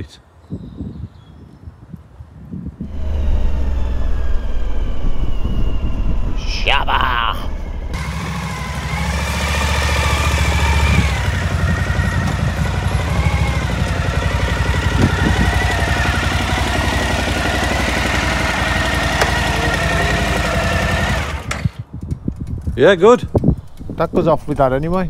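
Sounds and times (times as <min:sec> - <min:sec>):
motorcycle engine idling: 0:07.9 - 0:22.7.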